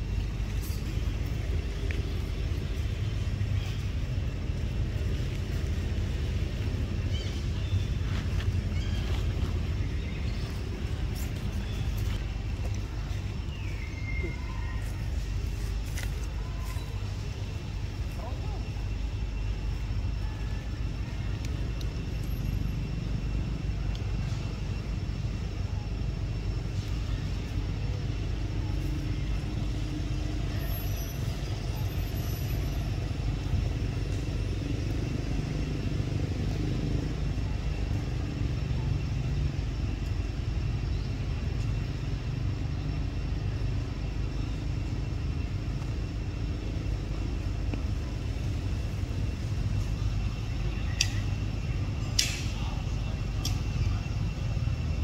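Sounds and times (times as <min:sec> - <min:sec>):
low outdoor rumble: 0:00.0 - 0:55.0.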